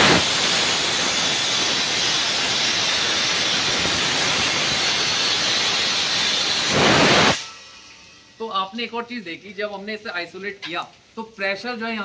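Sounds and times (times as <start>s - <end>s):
compressed air hissing: 0.0s - 7.5s.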